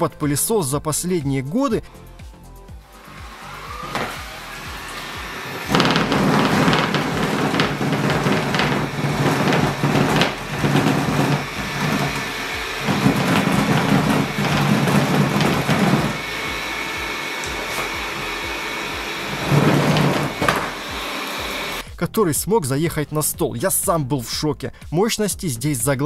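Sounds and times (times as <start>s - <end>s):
robot vacuum motor hum: 2.8s - 21.8s
robot vacuum wheels scrabbling: 3.0s - 21.8s.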